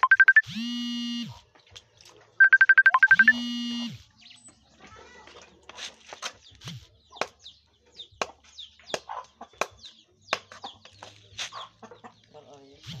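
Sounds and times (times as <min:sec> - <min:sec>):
chickens clucking: 0:04.0 - 0:13.0.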